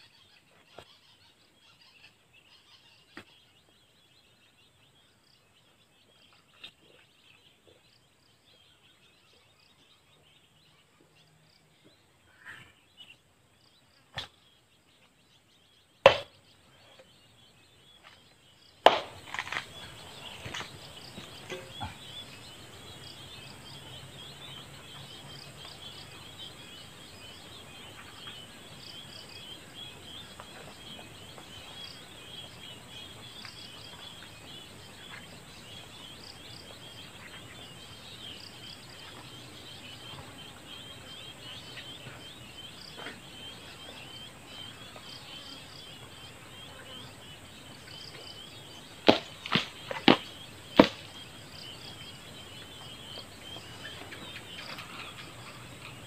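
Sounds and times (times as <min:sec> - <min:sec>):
sharp knocks: 0:16.1 - 0:16.4
insects chirring: 0:18.0 - 0:56.0.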